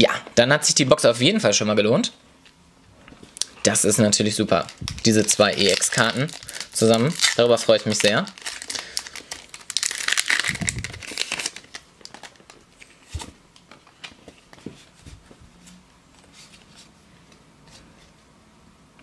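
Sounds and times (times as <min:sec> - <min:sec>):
foil wrapper crinkling: 0:04.3 - 0:13.3.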